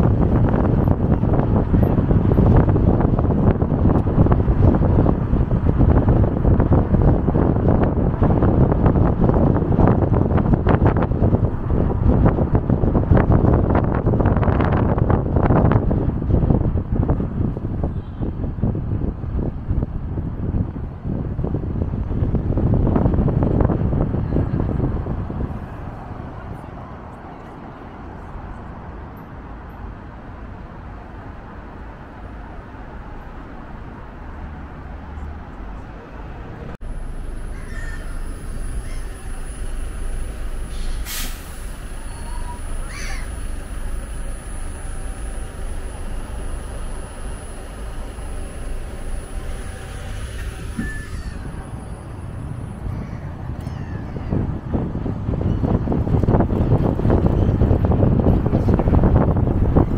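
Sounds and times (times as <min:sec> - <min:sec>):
wind buffeting microphone: 0:00.0 - 0:30.1, 0:36.4 - 0:59.9
bus engine rumbling: 0:00.0 - 0:59.9
city street traffic: 0:00.0 - 0:59.9.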